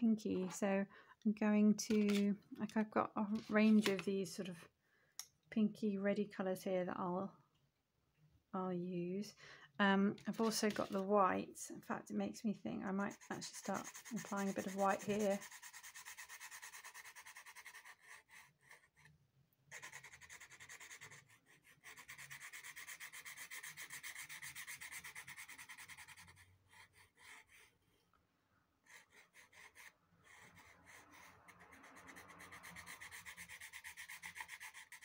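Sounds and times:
pencil scratching on rough paper: 0:13.0 - 0:19.1, 0:19.7 - 0:27.8, 0:28.8 - 0:35.0.

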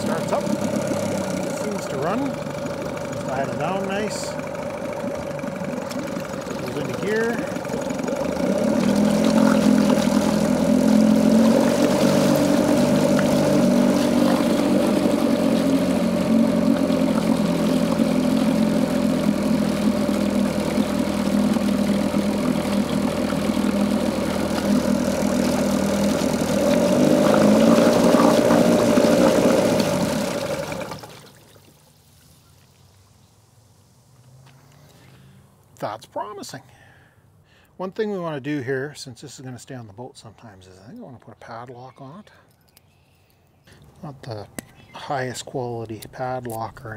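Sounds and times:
outboard motor running: 0:00.0 - 0:31.8.

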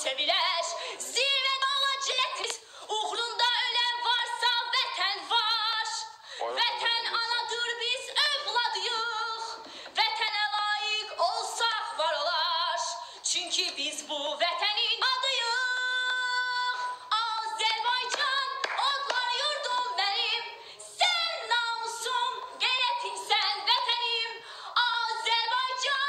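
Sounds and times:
woman singing unaccompanied: 0:00.0 - 0:26.0.

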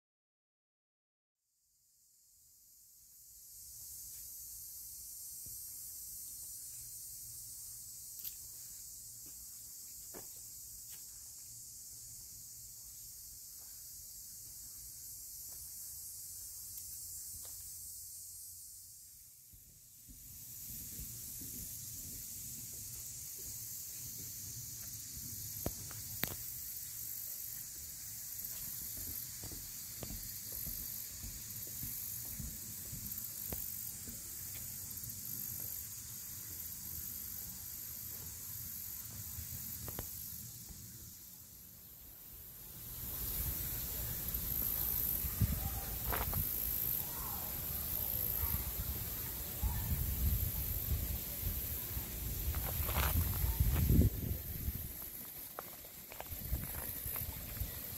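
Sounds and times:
high-pitched hiss: 0:01.7 - 0:57.9.

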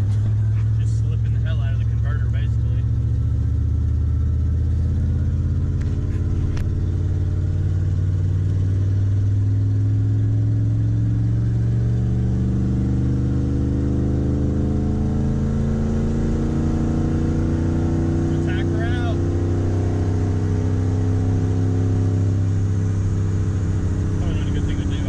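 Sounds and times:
car engine pulling from inside cab: 0:00.0 - 0:13.5, 0:14.2 - 0:25.0.

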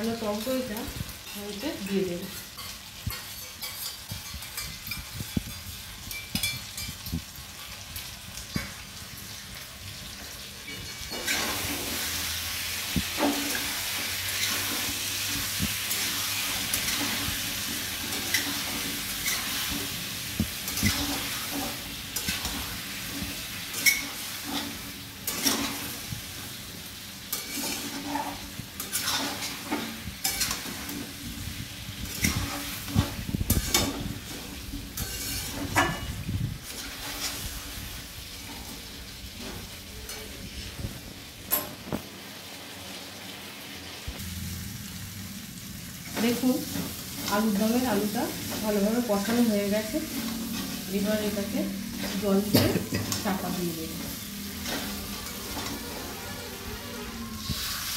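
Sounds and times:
potatoes sizzling in a pan: 0:00.0 - 0:57.9
metal spatula scraping pan: 0:02.2 - 0:07.7, 0:10.6 - 0:26.6, 0:27.2 - 0:31.4, 0:32.0 - 0:37.6, 0:46.1 - 0:57.9
metal clinking on pan: 0:02.6 - 0:07.8, 0:35.0 - 0:36.2, 0:41.5 - 0:41.8.

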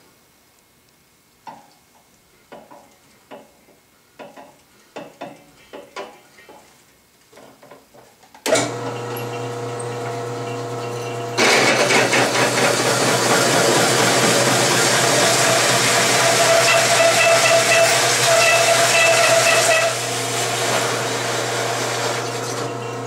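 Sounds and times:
drill press motor hum: 0:08.5 - 0:23.0
hole saw cutting steel: 0:08.5 - 0:23.0.

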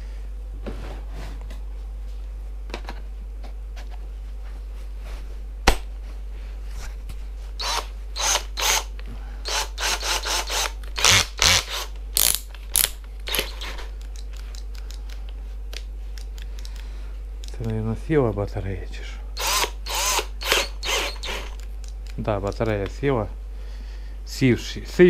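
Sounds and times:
drill chuck rasping whirs and clicks: 0:07.6 - 0:13.8, 0:19.4 - 0:21.7
drill sharp click: 0:19.4 - 0:21.6.

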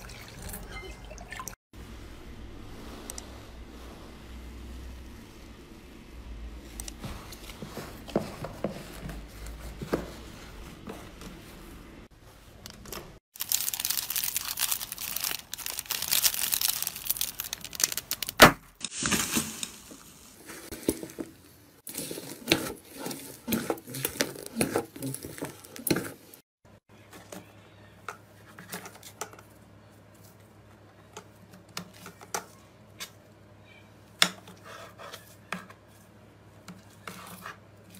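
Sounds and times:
foil pouch crinkling: 0:13.4 - 0:20.3.

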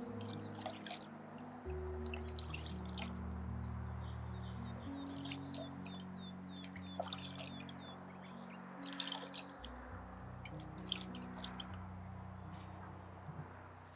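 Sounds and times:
small splashes: 0:00.0 - 0:03.3, 0:05.0 - 0:11.8
water dripping into a bowl: 0:00.0 - 0:03.4, 0:05.0 - 0:11.8.

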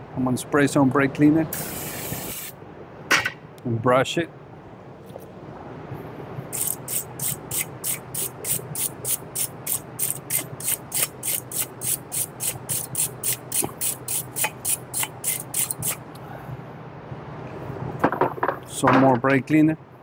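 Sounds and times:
stiff brush scrubbing metal: 0:06.6 - 0:16.0.

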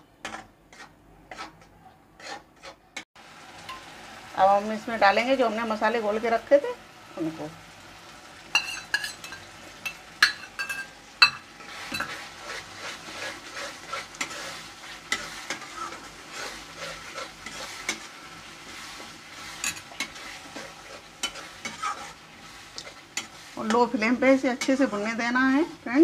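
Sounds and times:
spatula scraping metal pan: 0:00.1 - 0:03.0, 0:08.5 - 0:25.8
paste sizzling while frying: 0:00.3 - 0:01.6, 0:02.2 - 0:26.0.

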